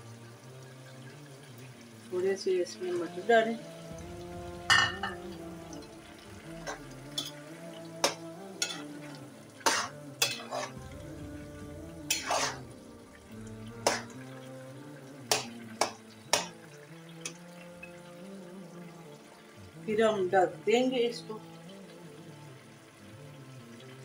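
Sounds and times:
simmering pot sizzle: 0:00.0 - 0:24.0
metal spoon scraping a pan: 0:06.6 - 0:07.4, 0:08.0 - 0:08.9, 0:09.6 - 0:10.8, 0:12.1 - 0:12.7, 0:13.8 - 0:14.2, 0:15.3 - 0:16.6.

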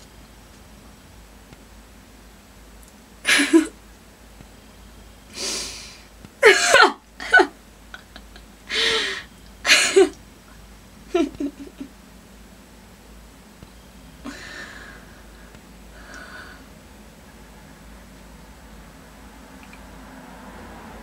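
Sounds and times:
woman sobbing: 0:03.3 - 0:03.7, 0:05.4 - 0:10.2, 0:11.1 - 0:11.9.

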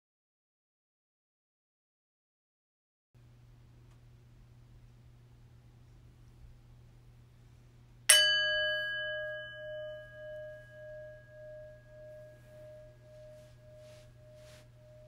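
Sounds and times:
bell ringing: 0:08.1 - 0:15.0.

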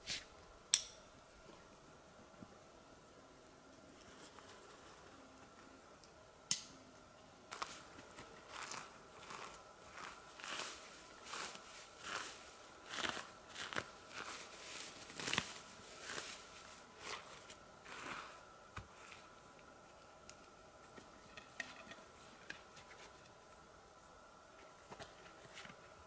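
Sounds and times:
soft footsteps: 0:07.5 - 0:19.5.

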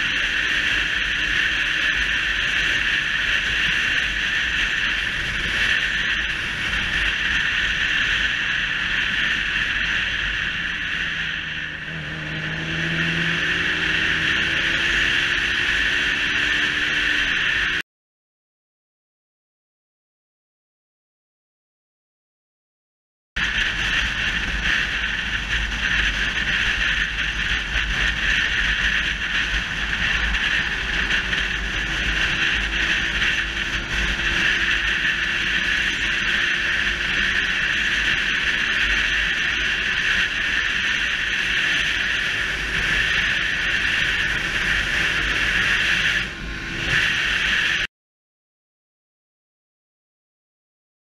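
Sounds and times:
motorcycle engine running: 0:00.0 - 0:17.8, 0:23.4 - 0:47.9
wind rushing across microphone: 0:23.4 - 0:47.9.

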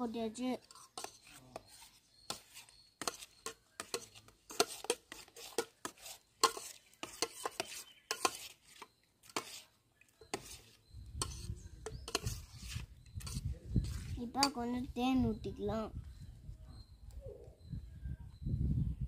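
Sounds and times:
spoon clinking in steel pot: 0:11.2 - 0:12.4.

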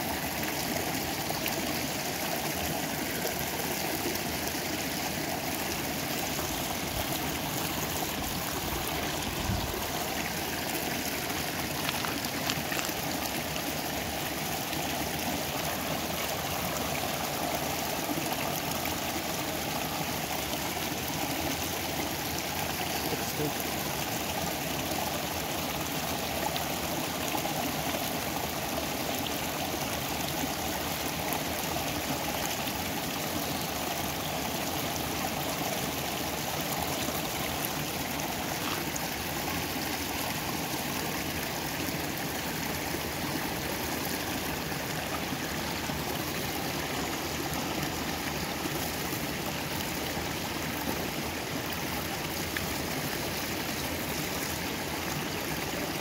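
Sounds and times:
stream running: 0:00.0 - 0:56.0.

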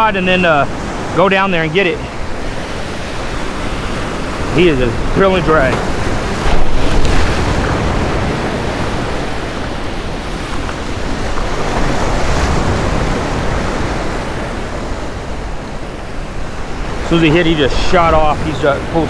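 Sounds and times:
surf breaking over rocks: 0:00.0 - 0:19.0
wind buffeting microphone: 0:01.8 - 0:19.0.

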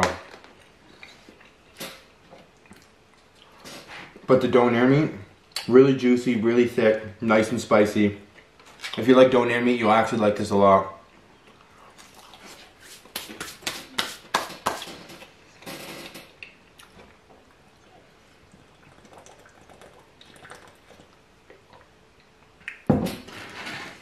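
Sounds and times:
hands rubbing together: 0:12.5 - 0:15.1.

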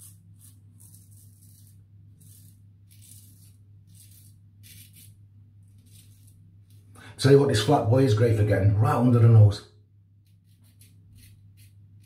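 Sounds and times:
razor scraping whiskers: 0:00.0 - 0:06.9, 0:10.2 - 0:12.0.

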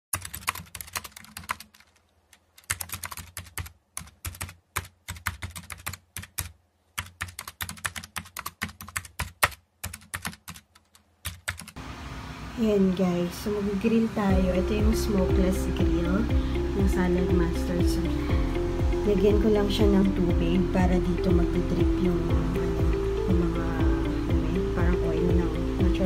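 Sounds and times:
typing on computer keyboard: 0:00.1 - 0:11.8.

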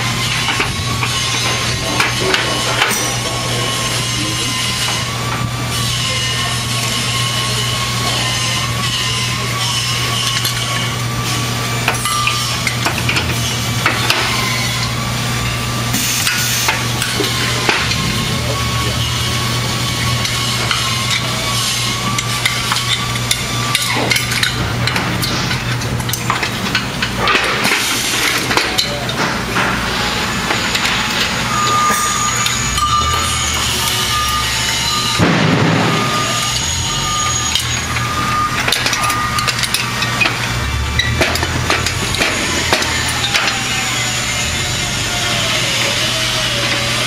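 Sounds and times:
aluminium parts clanking: 0:00.0 - 0:05.5, 0:08.4 - 0:44.6
high machine whine: 0:00.0 - 0:47.0
workshop machinery hum: 0:00.0 - 0:47.0.

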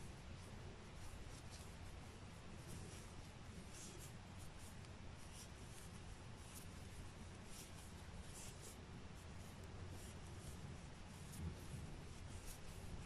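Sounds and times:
low steady hum: 0:00.0 - 0:13.0
yarn scratching on crochet hook: 0:00.9 - 0:13.0.

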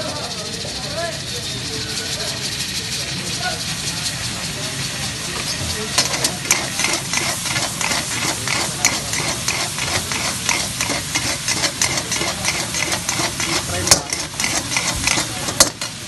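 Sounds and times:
frying sizzle: 0:00.0 - 0:16.0
metal spatula scraping wok: 0:03.8 - 0:16.0.

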